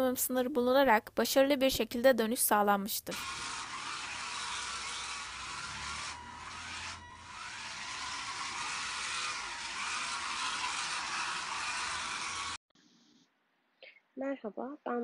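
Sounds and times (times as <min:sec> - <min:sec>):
small gear motors whirring: 0:03.1 - 0:12.6.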